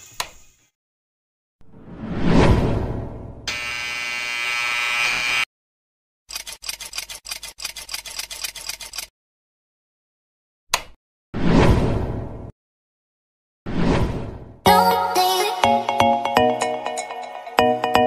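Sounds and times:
steady buzzing tone: 3.5s - 5.5s
rapid clicking: 6.3s - 9.1s.

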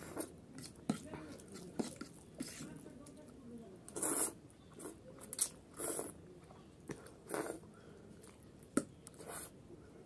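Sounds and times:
noodles slurping: 3.9s - 6.2s, 6.9s - 8.4s.

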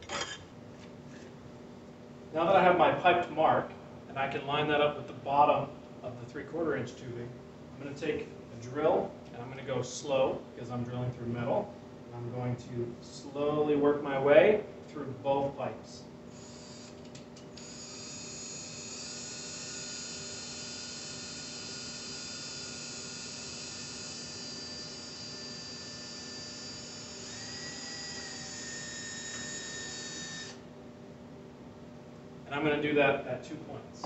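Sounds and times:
power drill whining: 16.4s - 30.6s.

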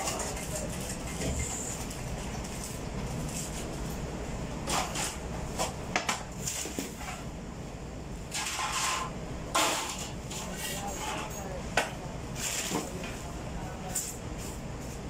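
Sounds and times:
low machine hum: 0.0s - 15.0s
bread rolls sliding across steel: 8.3s - 11.3s.

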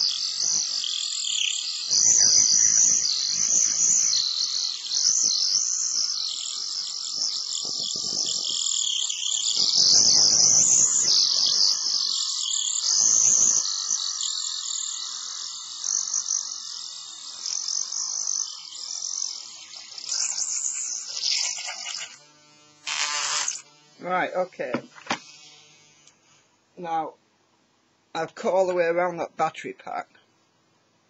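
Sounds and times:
rotary cutting tool whining: 0.0s - 26.2s
blade grinding plastic: 17.3s - 23.9s.

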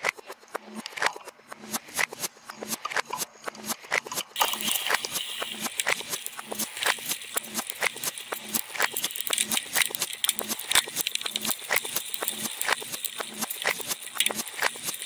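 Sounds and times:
bike chain and frame rattling: 4.4s - 15.0s.

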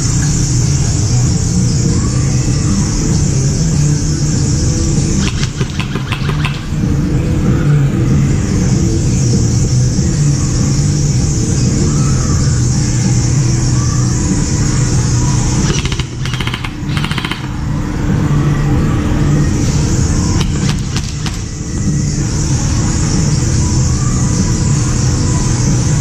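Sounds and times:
loud background din: 0.0s - 26.0s
airsoft gun firing: 5.2s - 6.8s, 15.7s - 17.8s, 20.4s - 21.6s.

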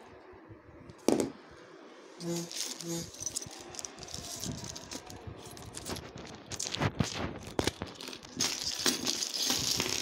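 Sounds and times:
plastic packaging crinkling: 2.3s - 10.0s.

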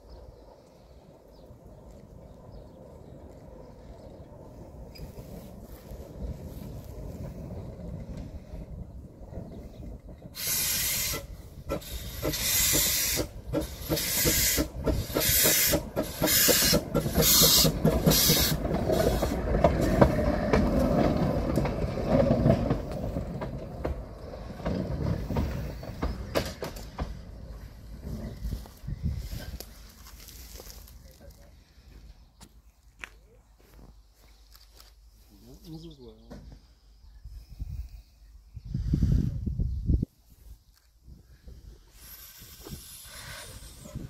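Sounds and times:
train wheels clicking over rails: 3.6s - 30.7s
steam locomotive chuffing: 4.9s - 28.7s, 41.8s - 44.0s
steam hissing: 10.3s - 20.0s, 41.8s - 44.0s.

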